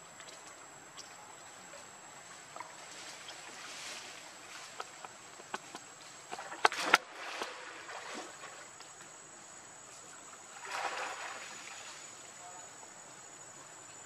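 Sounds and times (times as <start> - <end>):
water lapping and sloshing: 2.2 - 9.0, 10.0 - 12.4
splashing water: 2.6 - 8.8, 10.5 - 12.4
splashy slaps in water: 5.5 - 8.6, 10.6 - 11.5.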